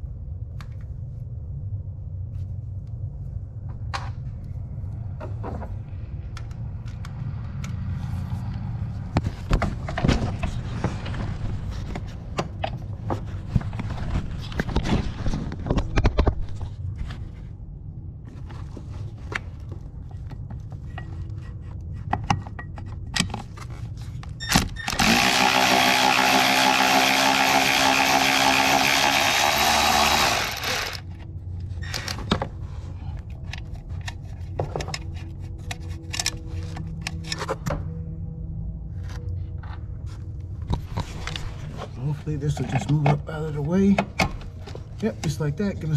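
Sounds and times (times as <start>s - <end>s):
electric ratchet running: 24.9s - 31.0s
clicks and knocks of tools: 33.2s - 37.8s.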